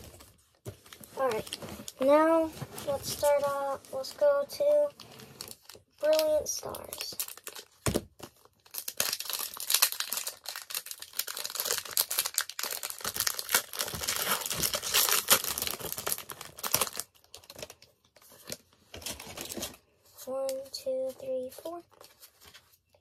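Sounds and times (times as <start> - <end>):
foil pack tearing and crinkling: 5.1 - 17.8.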